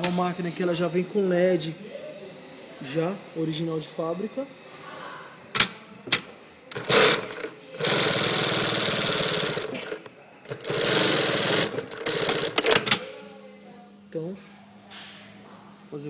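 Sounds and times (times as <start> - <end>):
sewing machine stitching: 6.7 - 13.0.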